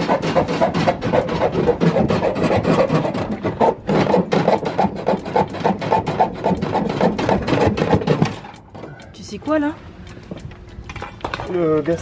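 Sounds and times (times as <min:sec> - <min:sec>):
hand saw rasping: 0:00.0 - 0:09.0.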